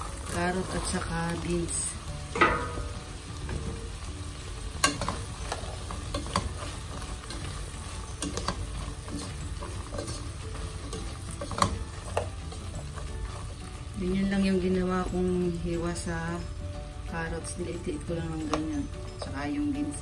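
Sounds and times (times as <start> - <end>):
vegetables sizzling in pot: 0.0 - 20.0
spatula scraping pan: 4.8 - 13.6.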